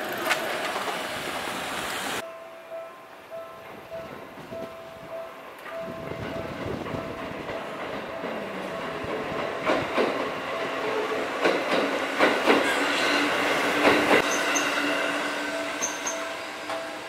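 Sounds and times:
train rumble: 3.4 - 17.0
train wheels clacking: 3.6 - 17.0.

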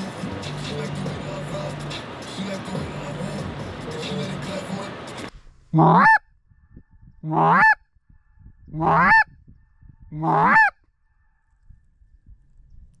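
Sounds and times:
goose call honks: 5.8 - 6.2, 7.2 - 7.8, 8.8 - 9.3, 10.1 - 10.8.

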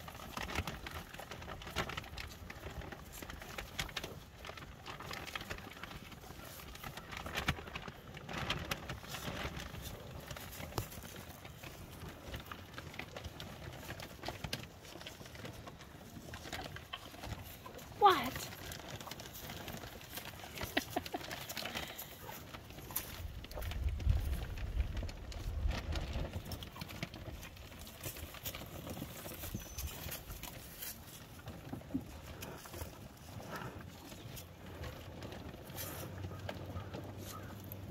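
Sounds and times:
cattle crunching feed: 0.0 - 37.9.

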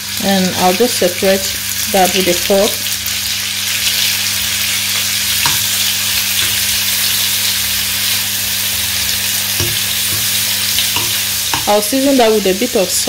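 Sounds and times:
chicken sizzling in hot oil: 0.0 - 13.0
metal fork clicking on pan: 9.6 - 10.3, 11.0 - 11.8.

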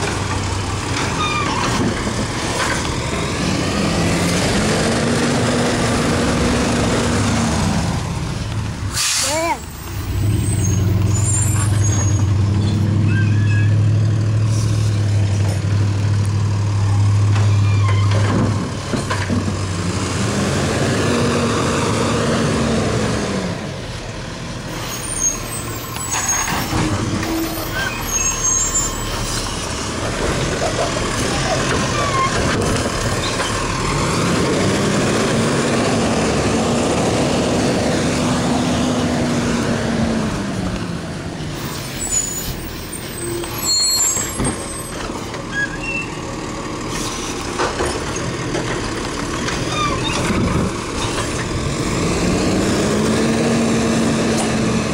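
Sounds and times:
garbage truck diesel engine revving: 0.0 - 8.9, 18.2 - 24.6, 25.4 - 41.4, 43.0 - 54.9.

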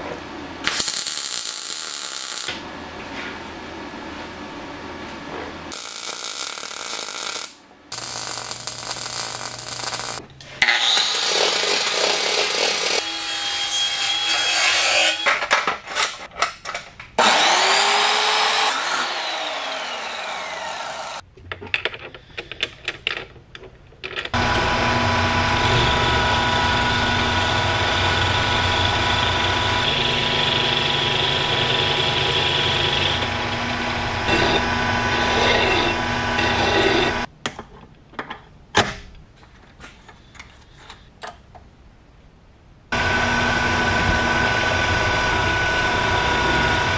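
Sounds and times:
arc welding hissing and crackling: 0.6 - 2.6, 5.7 - 10.2
chop saw cutting steel: 8.0 - 15.3, 17.2 - 21.2, 24.4 - 37.3
metal lathe running: 24.4 - 37.3, 43.0 - 46.9.

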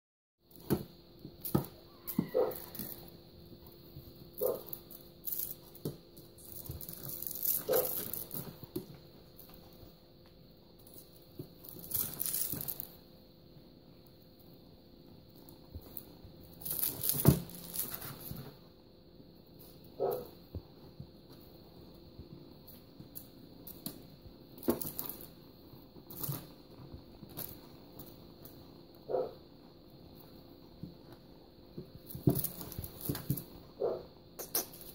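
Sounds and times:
faint steady hum: 0.4 - 34.9
feathers rustling: 6.4 - 8.6, 11.6 - 13.0, 16.6 - 18.5.

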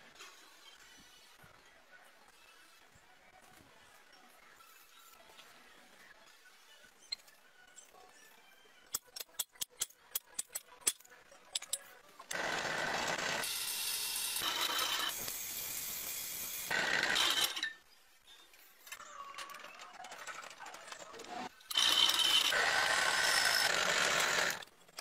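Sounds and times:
electric drill boring steel: 12.3 - 17.7, 21.7 - 24.7.

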